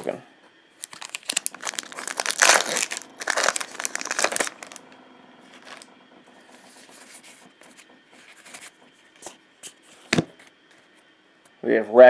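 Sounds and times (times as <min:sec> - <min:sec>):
cards rustling: 0:00.8 - 0:04.8
foil wrapper crinkling: 0:00.8 - 0:04.8.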